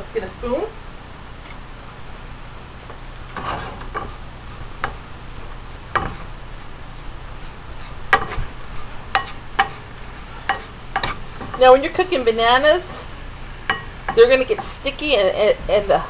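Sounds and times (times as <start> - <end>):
wooden spoon scraping metal saucepan: 3.2 - 5.0, 7.4 - 12.2.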